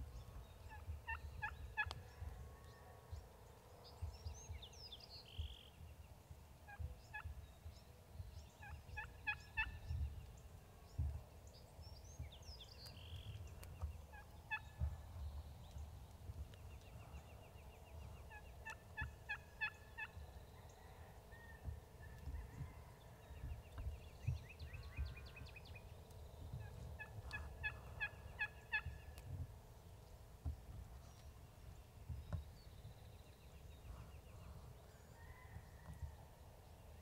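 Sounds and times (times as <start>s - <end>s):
distant turkeys gobbling: 0.7s - 2.0s, 8.6s - 9.8s, 13.8s - 15.0s, 18.2s - 25.3s, 26.6s - 29.2s.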